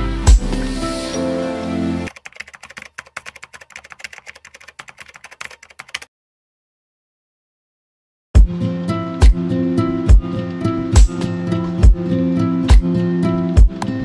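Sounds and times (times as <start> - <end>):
music: 0.0 - 2.1, 8.4 - 14.0
rapid keyboard typing: 2.1 - 6.1.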